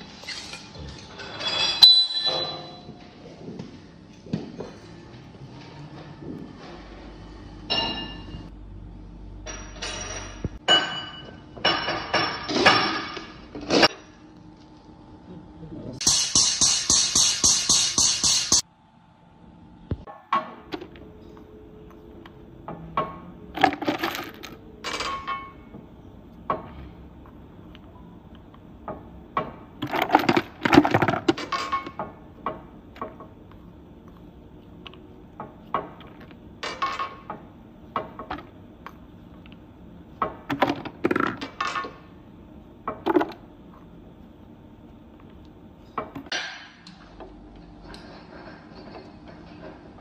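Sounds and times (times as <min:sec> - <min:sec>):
steel balls clinking: 0:00.2 - 0:02.9.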